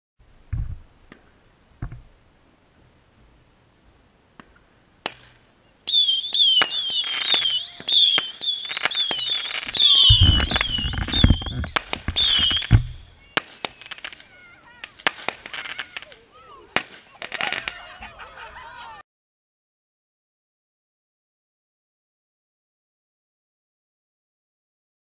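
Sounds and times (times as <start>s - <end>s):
crackling pops: 4.3s - 5.5s, 6.4s - 17.8s
firework whistles and cracks: 4.4s - 17.9s.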